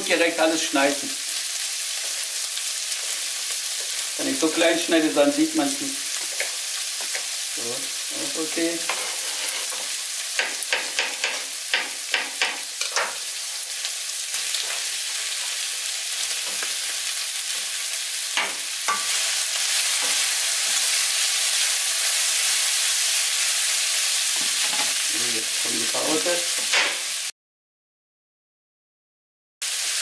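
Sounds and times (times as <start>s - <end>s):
food sizzling in a pan: 0.0s - 27.3s, 29.6s - 30.0s
spatula stirring in pan: 6.1s - 7.4s, 8.9s - 13.1s.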